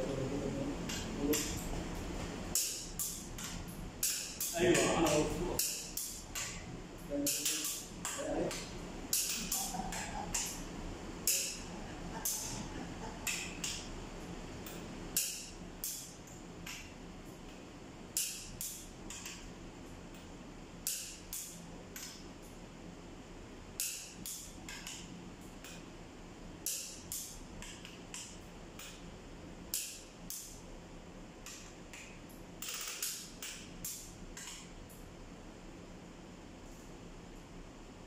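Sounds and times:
torque wrench clicking: 11.2 - 11.6, 32.6 - 34.6.

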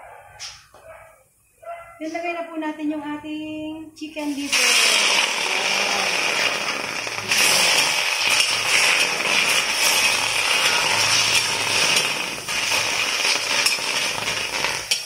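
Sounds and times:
food sizzling in a wok: 4.2 - 15.0
metal spoon scraping a pan: 7.3 - 15.0.

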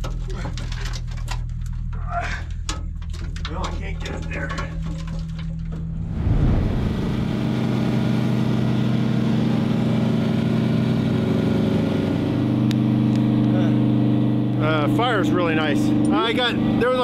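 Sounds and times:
engine hum: 5.6 - 17.0.

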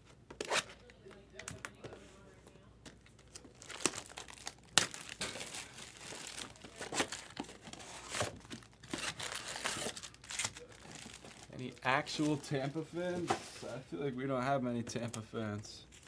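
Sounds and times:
plastic shrink-wrap tearing: 3.1 - 12.5.

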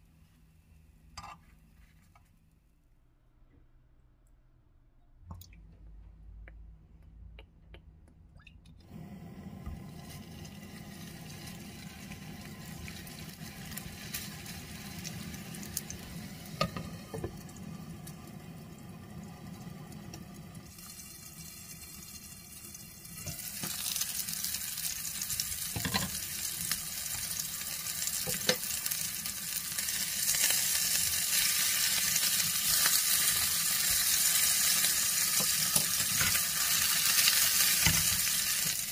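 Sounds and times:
patties sizzling in frying pan: 9.3 - 38.9.

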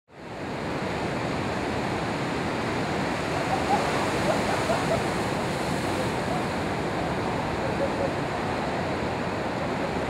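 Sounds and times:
ocean surf breaking: 0.3 - 10.0.

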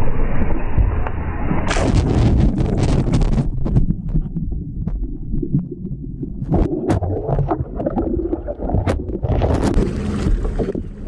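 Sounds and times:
water splashing and sloshing: 1.5 - 11.0
lapping water: 6.4 - 11.0.

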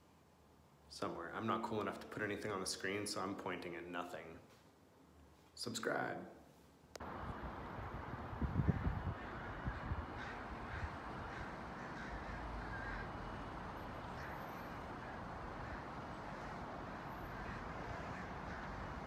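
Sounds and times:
outdoor background noise: 0.0 - 19.0
short bird calls: 8.7 - 19.0.

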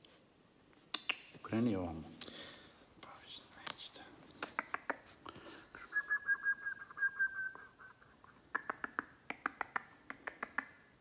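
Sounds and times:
person whistling: 5.8 - 8.2.

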